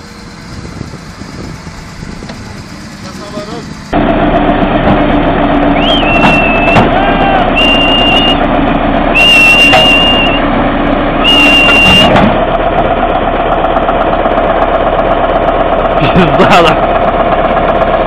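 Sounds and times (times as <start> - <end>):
tractor engine running: 0.0 - 18.0
shrill whistles: 5.8 - 8.4, 9.1 - 10.5, 11.2 - 12.2.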